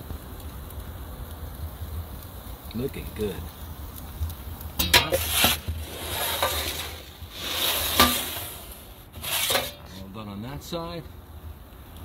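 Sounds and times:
metal peel scraping on stone: 4.8s - 10.0s.

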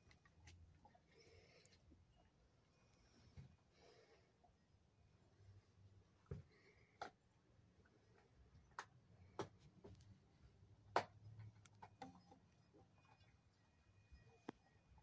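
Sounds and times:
faint handling clicks and taps: 8.0s - 13.4s.

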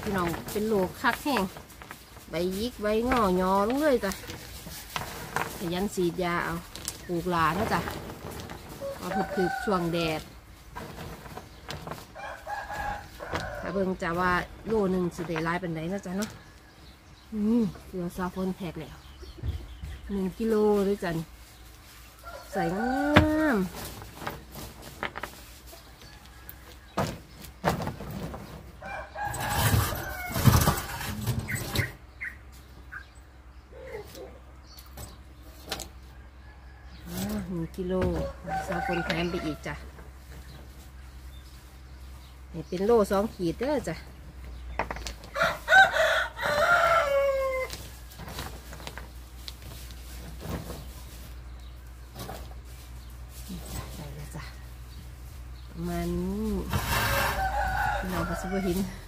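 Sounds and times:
rooster crowing: 28.8s - 30.5s, 45.3s - 47.8s, 56.9s - 59.0s.

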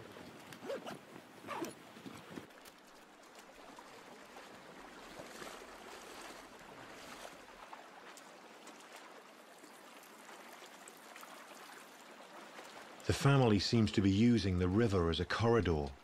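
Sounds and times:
soft splashes of wading: 0.0s - 13.1s
stream running over gravel: 2.4s - 13.3s.

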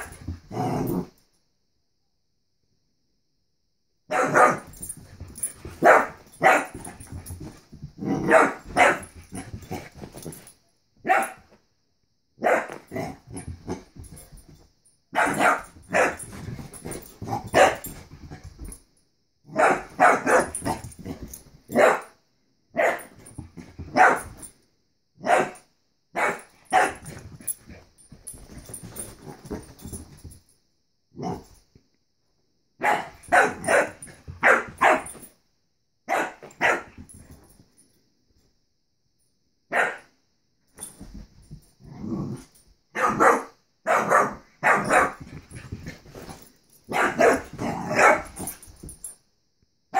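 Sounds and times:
dog barking: 4.1s - 4.7s, 5.8s - 6.8s, 8.2s - 9.1s, 11.0s - 11.4s, 12.4s - 12.8s, 15.2s - 16.2s, 19.5s - 20.6s, 21.7s - 22.2s, 22.8s - 23.1s, 23.9s - 24.3s, 25.2s - 25.6s, 26.2s - 27.0s, 32.8s - 35.1s, 36.1s - 37.0s, 39.7s - 40.1s, 42.9s - 45.2s, 46.9s - 48.3s.

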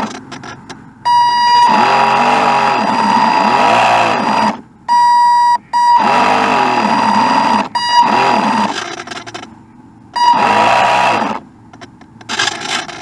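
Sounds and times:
electronic beeping tone: 1.0s - 4.3s, 4.9s - 8.4s, 10.1s - 11.2s.

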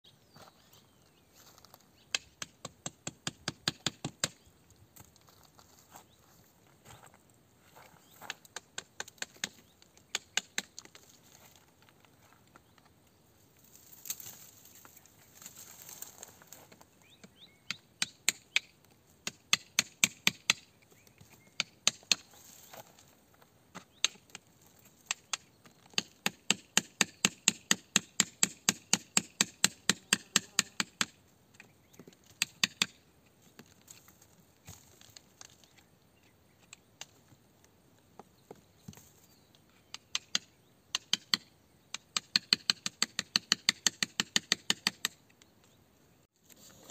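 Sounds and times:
hand tool striking rock: 40.0s - 45.2s.

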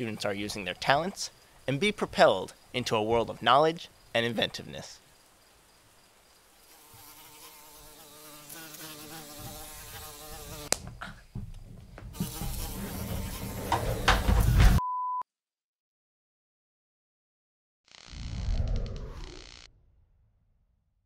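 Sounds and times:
short steady beep: 14.8s - 15.2s
low rumble: 18.2s - 21.0s.

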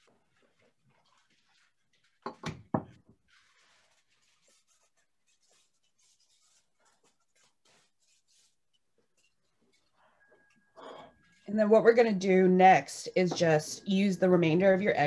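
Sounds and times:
parchment paper rustling: 0.0s - 10.5s.

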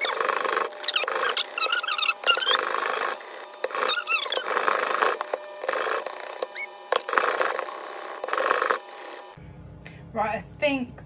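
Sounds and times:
squeaks of wires on plastic: 0.0s - 9.2s
whisk scraping and swishing: 0.0s - 9.3s.

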